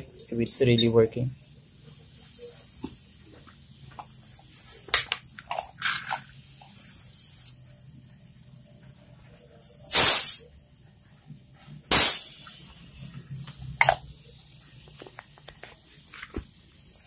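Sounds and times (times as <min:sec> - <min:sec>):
pressurised gas hissing: 0:01.4 - 0:07.6, 0:09.6 - 0:10.5, 0:11.8 - 0:17.0.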